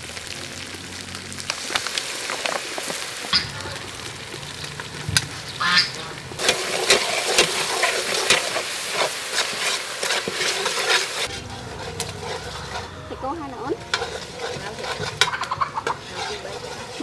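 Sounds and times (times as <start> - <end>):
chili paste sizzling in oil: 0.0 - 17.0
metal ladle clicking on pot: 13.8 - 16.3.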